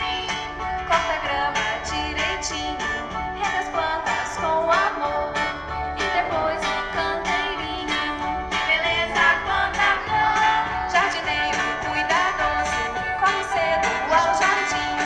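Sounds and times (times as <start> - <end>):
children's song: 0.0 - 15.0.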